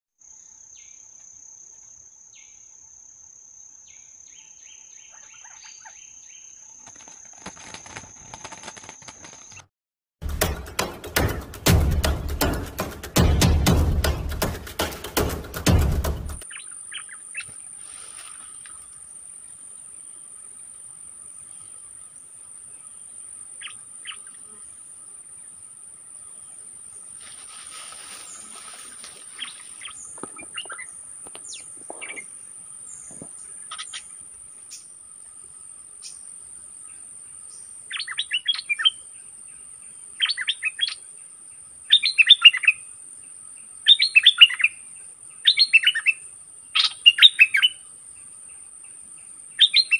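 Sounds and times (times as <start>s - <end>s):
high insect drone: 16.5s - 38.0s.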